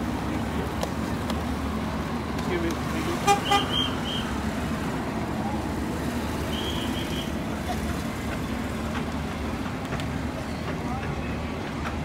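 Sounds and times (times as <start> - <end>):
tow cart motor rumble: 0.0 - 12.0
crowd murmur: 5.2 - 12.0.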